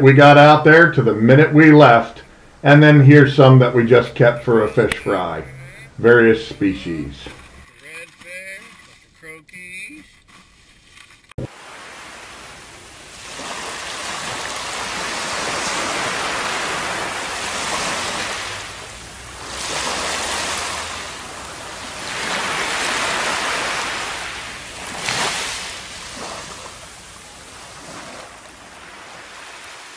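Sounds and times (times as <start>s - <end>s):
surf washing up a beach: 11.4s - 29.9s.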